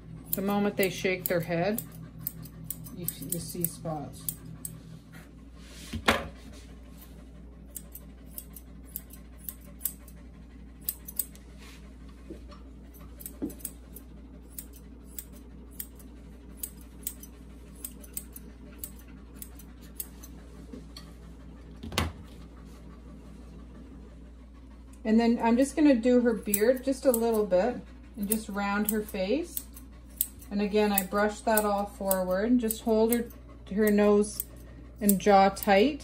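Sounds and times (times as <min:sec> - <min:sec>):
low steady hum: 0:00.0 - 0:36.0
scissors snipping hair: 0:00.3 - 0:04.8, 0:07.7 - 0:10.2, 0:10.8 - 0:11.4, 0:12.9 - 0:20.4, 0:26.3 - 0:35.9.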